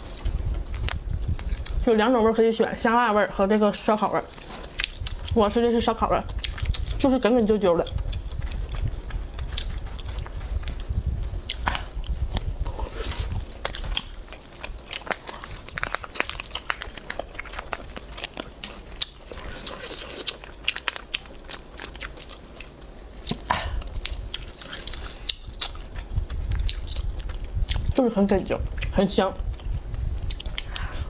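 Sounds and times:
chewing and biting snack: 4.4s - 5.4s, 6.2s - 7.1s, 7.8s - 28.0s, 28.7s - 31.0s
plastic packet crinkling: 13.6s - 22.4s.

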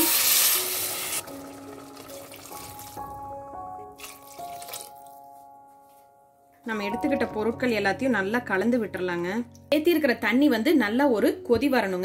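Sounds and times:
water poured into pan: 0.0s - 3.2s, 4.0s - 5.2s
soft background music: 0.0s - 12.0s.

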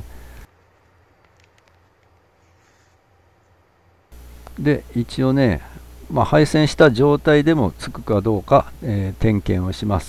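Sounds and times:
weak low hum: 3.0s - 10.0s.

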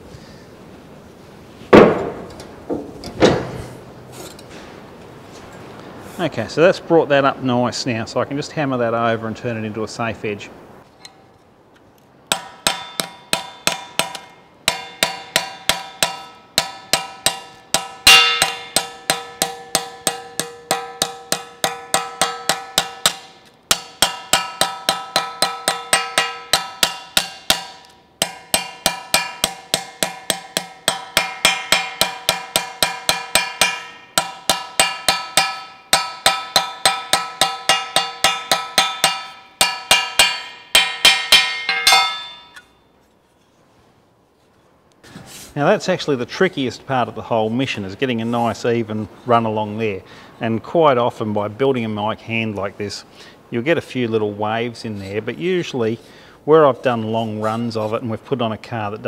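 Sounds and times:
hammer tapping sheet steel: 1.8s - 3.7s, 12.3s - 42.7s.

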